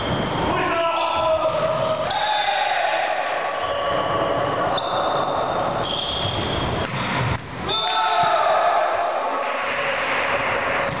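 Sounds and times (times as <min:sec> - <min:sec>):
players' voices and calls: 0:00.1 - 0:07.0
high-pitched squeaks: 0:04.7 - 0:06.9.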